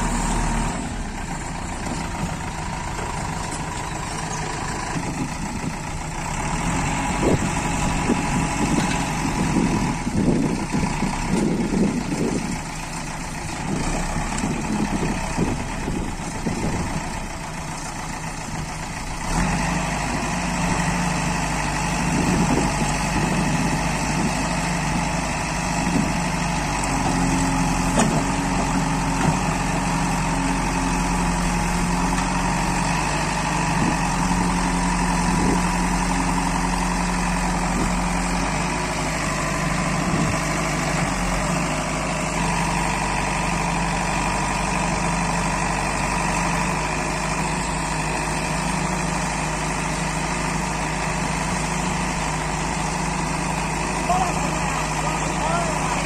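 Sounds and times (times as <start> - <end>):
diesel engine running: 0.0 - 56.0
tractor engine running: 0.0 - 56.0.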